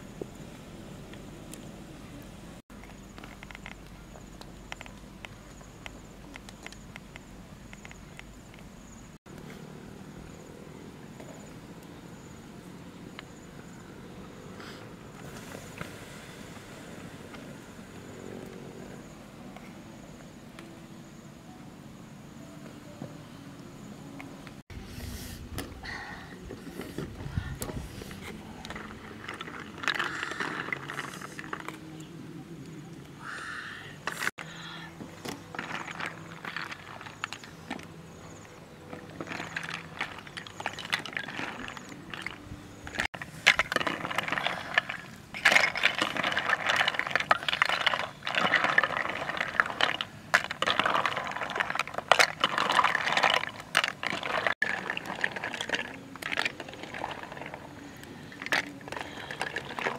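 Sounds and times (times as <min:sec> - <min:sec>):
snail shells clattering in a metal wok: 0:43.4 - 0:59.9.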